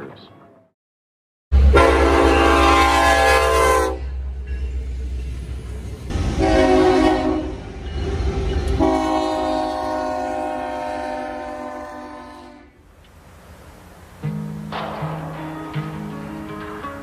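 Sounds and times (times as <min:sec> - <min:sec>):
locomotive horn blasts: 0:01.6 - 0:04.2, 0:06.4 - 0:07.6, 0:08.8 - 0:12.8
train rolling rumble: 0:01.6 - 0:17.0.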